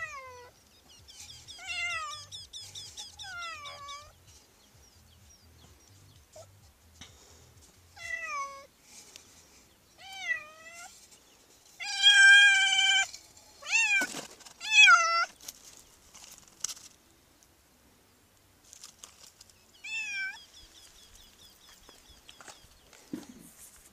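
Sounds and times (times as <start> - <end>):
cat meowing: 0.0 - 0.5, 1.6 - 2.3, 3.2 - 4.1, 8.0 - 8.7, 10.0 - 10.9, 11.8 - 15.3, 19.8 - 20.4.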